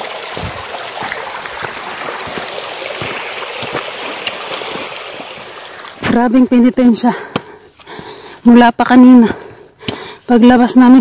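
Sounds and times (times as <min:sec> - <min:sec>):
stream trickling over stones: 0:00.0 - 0:07.0
footsteps on rocky path: 0:00.2 - 0:08.4, 0:09.2 - 0:10.2.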